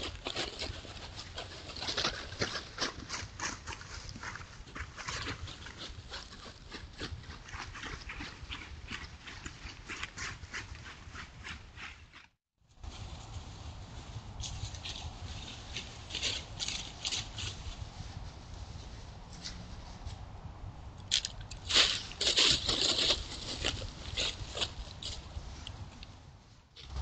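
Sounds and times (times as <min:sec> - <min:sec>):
footsteps rustling through dry leaves: 0:12.7 - 0:20.3, 0:21.6 - 0:25.9.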